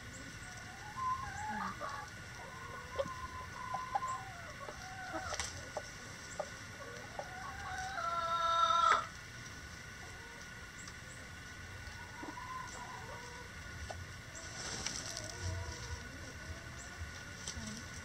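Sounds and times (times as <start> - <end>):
hens clucking: 0.0 - 18.0
rooster crowing: 6.8 - 9.1.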